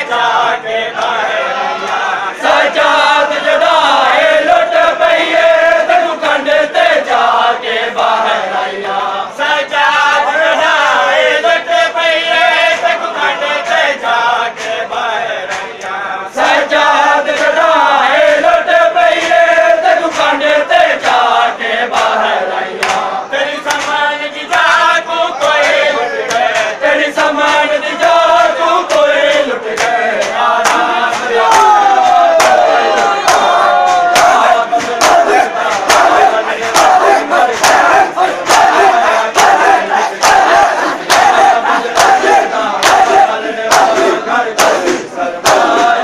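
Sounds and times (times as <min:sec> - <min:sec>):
men chanting a lament in unison: 0:00.0 - 0:46.0
hands slapping bare chests: 0:22.8 - 0:23.1, 0:23.7 - 0:24.0, 0:28.9 - 0:46.0.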